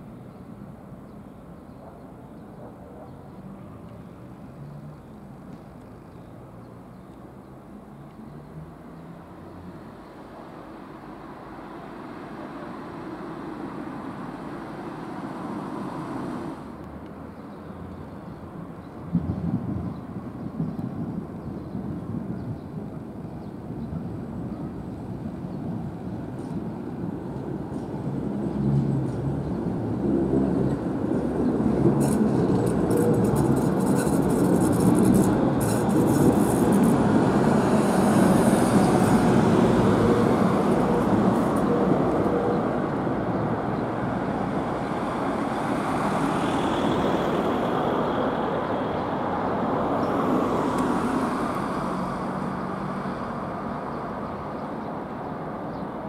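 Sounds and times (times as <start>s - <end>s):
wheels rumbling on rails: 12.6s - 17.0s, 19.1s - 53.8s
tram motors humming: 12.7s - 16.8s.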